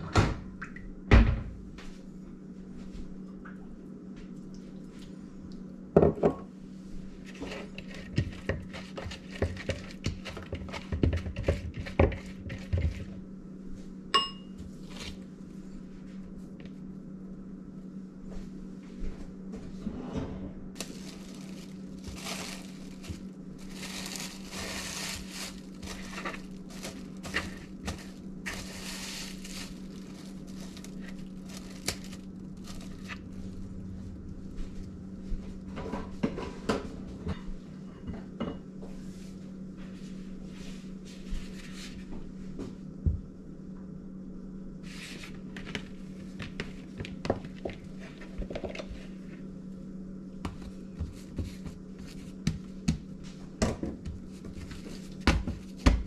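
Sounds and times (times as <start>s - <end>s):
steady low hum: 0.0s - 56.0s
plastic cling wrap crinkling: 20.8s - 33.6s.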